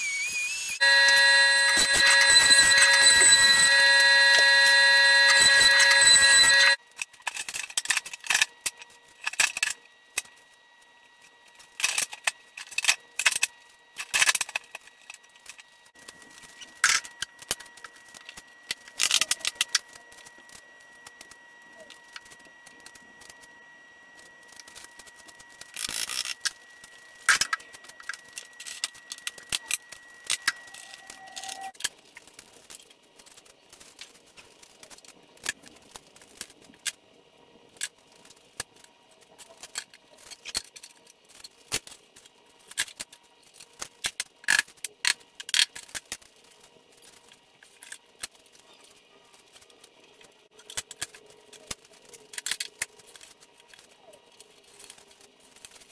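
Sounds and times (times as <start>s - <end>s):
faint steady whine: 0.0s - 42.8s.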